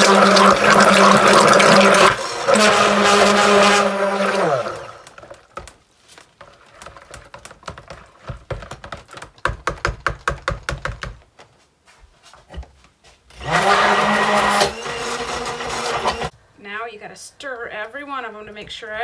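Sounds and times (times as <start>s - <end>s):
stick blender motor whine: 0.0s - 5.4s, 13.3s - 16.3s.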